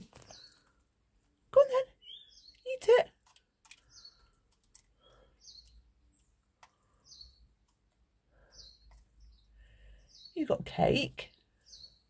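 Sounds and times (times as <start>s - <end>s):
beaks pecking plastic dish: 2.0s - 9.5s.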